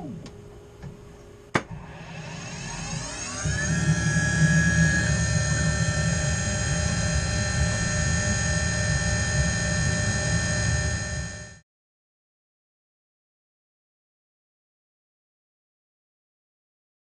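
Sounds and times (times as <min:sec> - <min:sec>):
mill spindle whine: 0:00.0 - 0:11.6.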